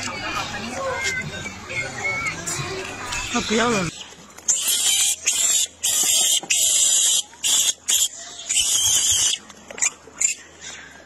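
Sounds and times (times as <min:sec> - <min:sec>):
macaques screeching: 0:03.1 - 0:10.9.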